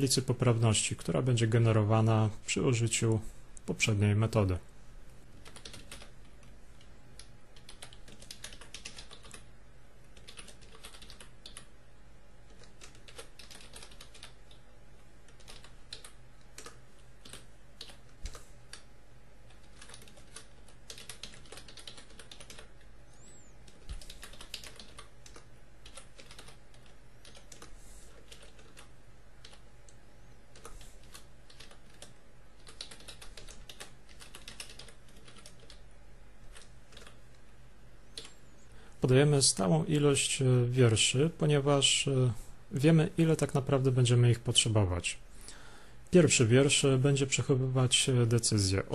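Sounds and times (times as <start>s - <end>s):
computer keyboard keystroke clicks: 5.4s - 6.5s, 7.2s - 9.5s, 10.2s - 11.7s, 12.5s - 14.6s, 15.3s - 18.9s, 19.5s - 22.7s, 23.6s - 29.6s, 30.5s - 35.8s, 36.5s - 37.2s.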